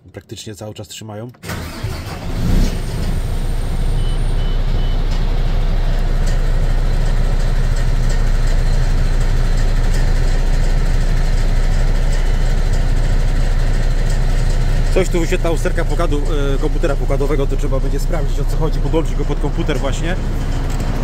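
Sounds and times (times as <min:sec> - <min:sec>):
diesel engine idling: 0:01.5 - 0:21.0
dashboard warning beeps: 0:03.8 - 0:05.5.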